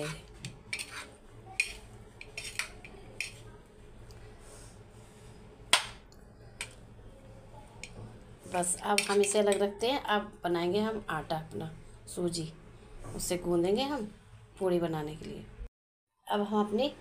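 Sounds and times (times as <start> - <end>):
metal spoon clinking on ceramic plate: 9.0 - 9.4.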